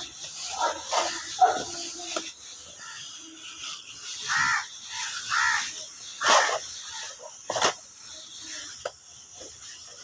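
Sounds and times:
crow cawing: 0:04.3 - 0:05.8.

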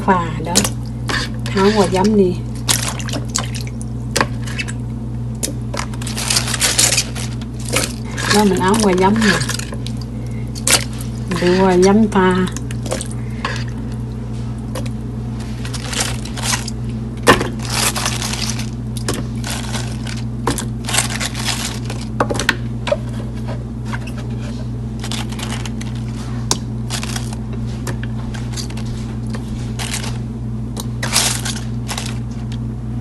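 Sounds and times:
steady low hum: 0:00.0 - 0:33.0
wet greens rustling in plastic basin: 0:05.6 - 0:22.2, 0:23.2 - 0:30.3, 0:30.9 - 0:32.6.

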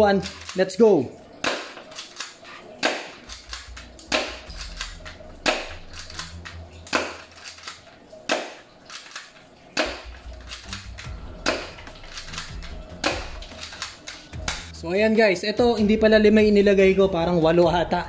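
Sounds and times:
pistol slide racking: 0:00.2 - 0:00.6, 0:01.4 - 0:14.7
airsoft pistol shots: 0:01.4 - 0:01.8.

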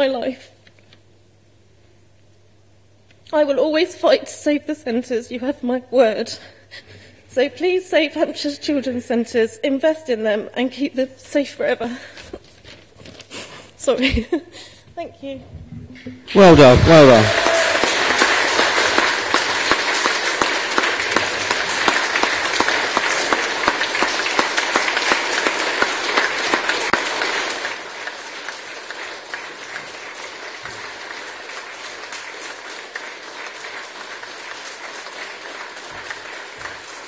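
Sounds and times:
audience applauding: 0:16.4 - 0:37.0.

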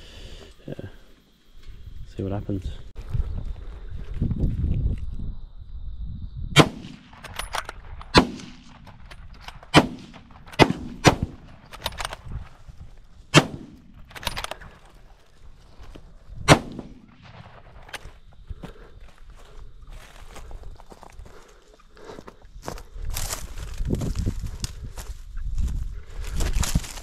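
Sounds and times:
rifle shots: 0:06.6 - 0:12.1, 0:13.3 - 0:14.5, 0:16.4 - 0:18.0.

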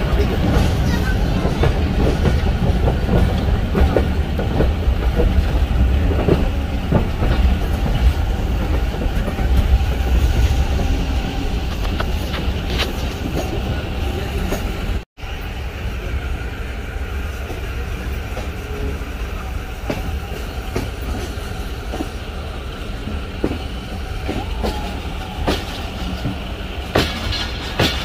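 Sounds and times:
train rumbling inside carriage: 0:00.0 - 0:28.0.

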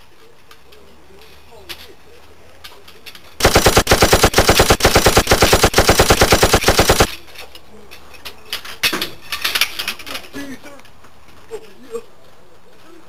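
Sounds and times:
machine-gun fire: 0:03.4 - 0:07.1.

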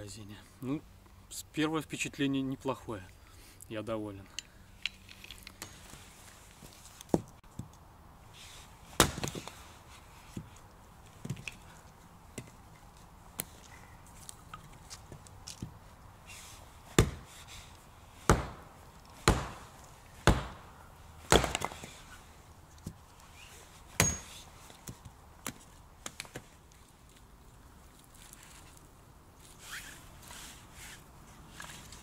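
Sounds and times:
hatchet chopping firewood: 0:09.0 - 0:09.6, 0:16.9 - 0:17.4, 0:18.2 - 0:22.1, 0:24.0 - 0:26.5.

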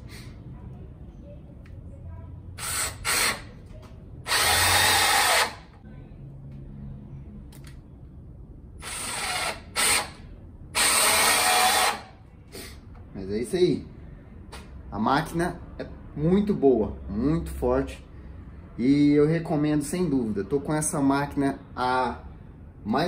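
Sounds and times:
cordless drill driving screws: 0:02.6 - 0:03.5, 0:04.3 - 0:05.7, 0:08.8 - 0:10.2, 0:10.8 - 0:12.1.

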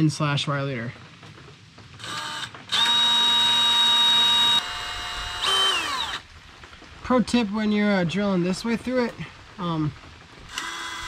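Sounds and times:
cordless drill whining: 0:02.0 - 0:06.2, 0:10.5 - 0:11.0.

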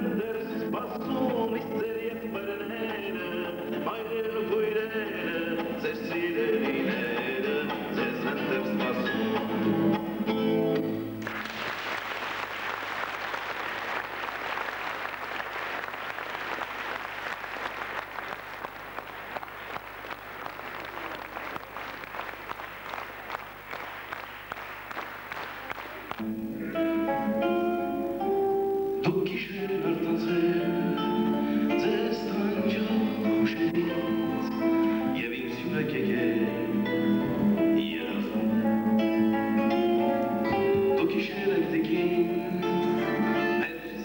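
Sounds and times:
acoustic guitar music: 0:00.0 - 0:11.3, 0:26.2 - 0:44.0
audience applauding: 0:11.2 - 0:26.4.

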